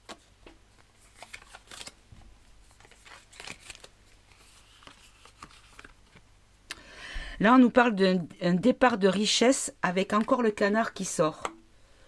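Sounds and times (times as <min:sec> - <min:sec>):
cards shuffled by hand: 0:00.0 - 0:02.0, 0:02.6 - 0:06.2.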